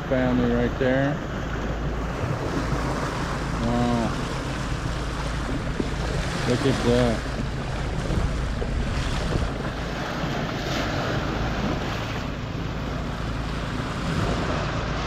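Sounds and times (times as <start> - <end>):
boat engine droning: 0.0 - 15.0
bow wave rushing and splashing: 0.0 - 15.0
wind buffeting microphone: 0.6 - 15.0.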